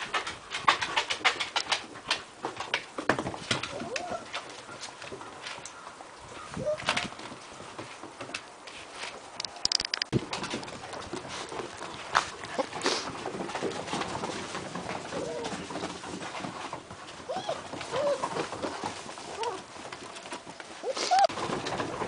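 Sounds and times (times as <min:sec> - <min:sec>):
puppies whining and yipping: 0:17.2 - 0:19.6, 0:20.8 - 0:21.3.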